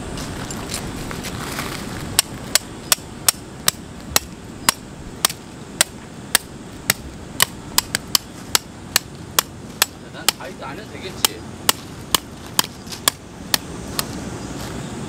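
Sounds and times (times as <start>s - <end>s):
hammer striking tent peg: 2.2s - 10.5s, 11.2s - 14.1s.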